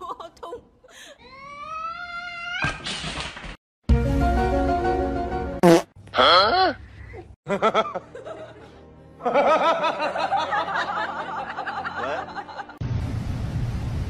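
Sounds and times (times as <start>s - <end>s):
snickering laughter: 7.5s - 12.7s.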